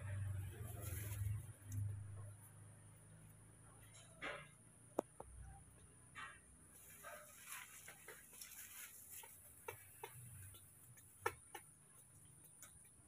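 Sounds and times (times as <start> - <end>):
leaves rustling: 0.4 - 1.9, 6.7 - 11.0
thin branches clicking: 6.8 - 13.0.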